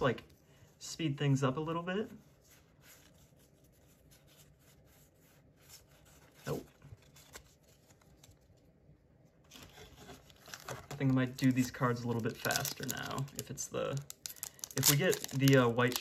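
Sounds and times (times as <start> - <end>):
trading cards rustling and clicking: 9.5 - 16.0.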